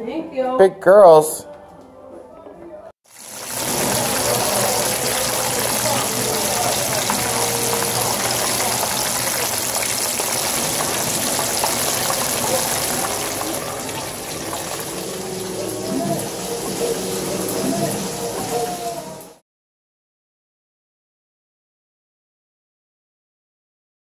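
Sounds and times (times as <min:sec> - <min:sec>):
chicken frying in hot oil: 0:03.1 - 0:19.4.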